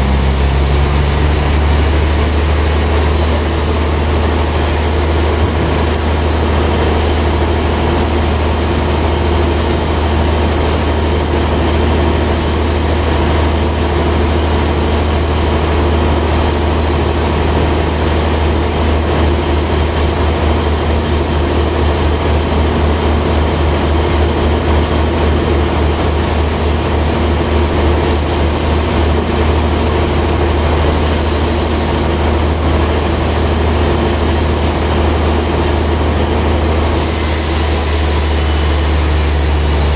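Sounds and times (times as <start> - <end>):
band saw mill humming: 0.0 - 39.9.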